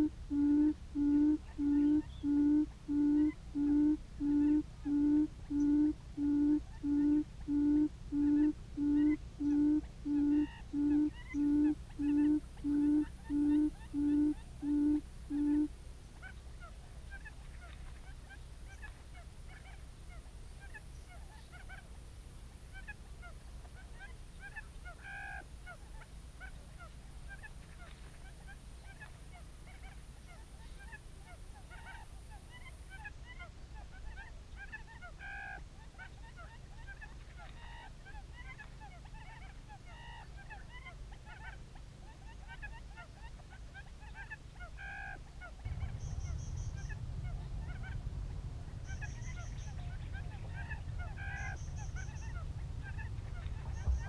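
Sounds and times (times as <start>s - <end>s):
faint chirps: 0.0s - 21.9s, 45.6s - 54.0s
quail call from speaker: 0.0s - 21.9s, 24.0s - 28.0s, 28.9s - 48.0s, 48.8s - 54.0s
low rumble: 45.6s - 54.0s.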